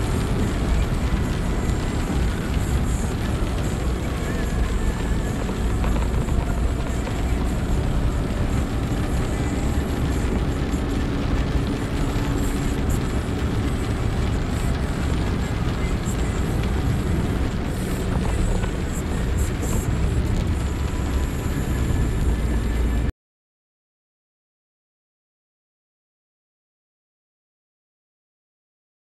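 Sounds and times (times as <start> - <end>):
raindrops ticking on glass: 0.0 - 22.0
hiss of rain and spray: 0.0 - 23.0
engine and tyres on wet road: 0.0 - 23.1.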